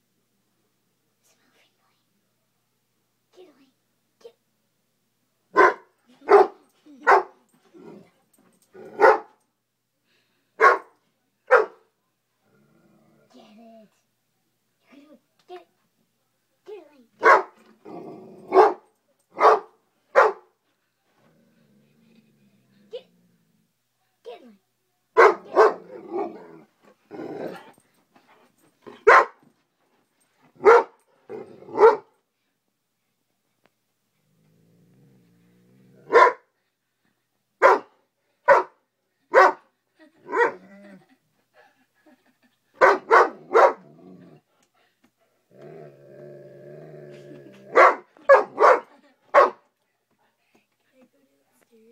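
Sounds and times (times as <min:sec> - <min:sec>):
dog barking: 0:05.5 - 0:07.4, 0:08.9 - 0:09.4, 0:10.6 - 0:11.9, 0:17.2 - 0:17.6, 0:18.5 - 0:20.5, 0:25.2 - 0:26.4, 0:28.9 - 0:29.4, 0:30.6 - 0:31.0, 0:31.7 - 0:32.1, 0:36.1 - 0:36.5, 0:37.6 - 0:39.6, 0:40.3 - 0:40.6, 0:42.8 - 0:43.9, 0:47.7 - 0:49.6
dog growling: 0:07.6 - 0:09.0, 0:12.4 - 0:13.6, 0:17.7 - 0:18.7, 0:21.2 - 0:23.7, 0:25.4 - 0:27.8, 0:31.2 - 0:32.0, 0:34.2 - 0:36.2, 0:40.2 - 0:41.2, 0:43.3 - 0:44.5, 0:45.5 - 0:47.8.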